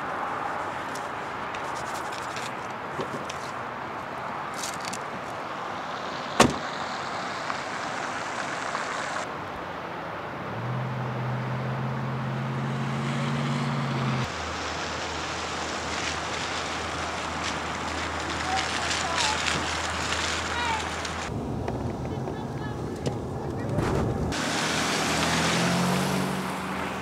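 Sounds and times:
car door slamming: 6.4s - 6.7s
car engine humming: 10.4s - 27.0s.

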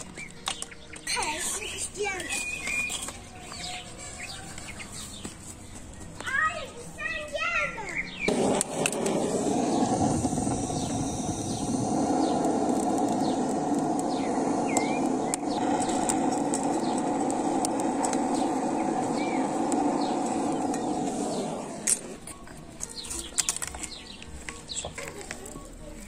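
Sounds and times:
birds chirping: 0.0s - 26.0s
gas blowtorch running: 8.3s - 22.4s.

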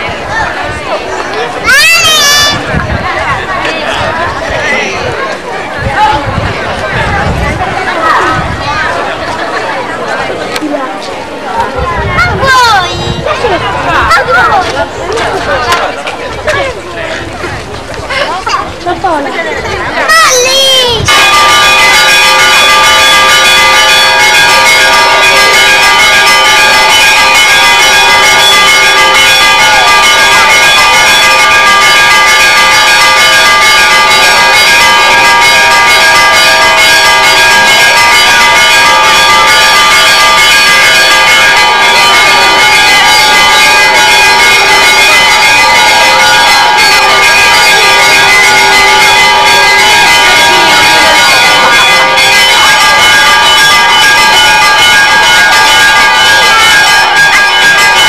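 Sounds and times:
church bells ringing: 20.1s - 58.0s.

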